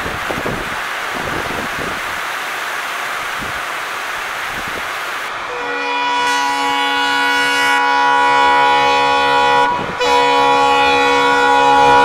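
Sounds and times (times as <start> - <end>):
locomotive air horn blast: 5.3 - 12.0.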